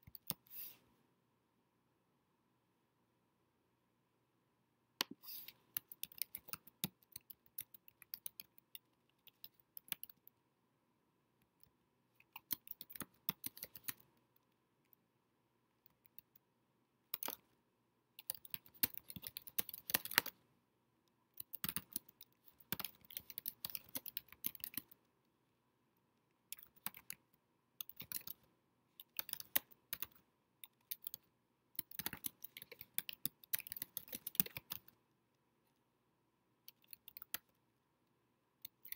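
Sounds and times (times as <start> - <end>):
keyboard typing: 0.0 - 0.6, 5.0 - 10.3, 12.2 - 14.1, 17.1 - 17.5, 18.2 - 20.4, 21.4 - 25.0, 26.5 - 35.0, 36.7 - 37.6, 38.6 - 38.9.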